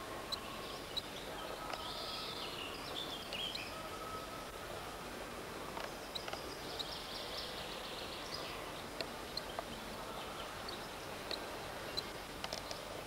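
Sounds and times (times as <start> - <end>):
steady hiss: 0.0 - 13.0
faint clicks: 12.0 - 12.8.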